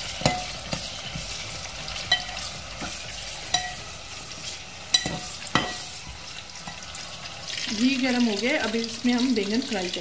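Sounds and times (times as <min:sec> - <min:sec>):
onions sizzling in hot oil: 0:00.0 - 0:10.0
metal spoon knocking on pot: 0:00.2 - 0:00.8, 0:04.9 - 0:05.9.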